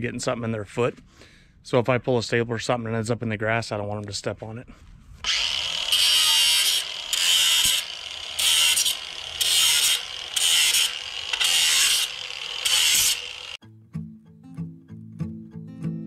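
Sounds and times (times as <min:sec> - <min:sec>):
angle grinder cutting wire: 0:05.2 - 0:13.6.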